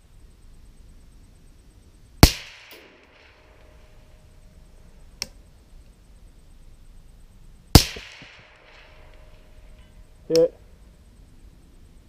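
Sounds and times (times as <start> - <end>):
suppressed rifle shot: 2.2 - 4.3, 7.7 - 10.0.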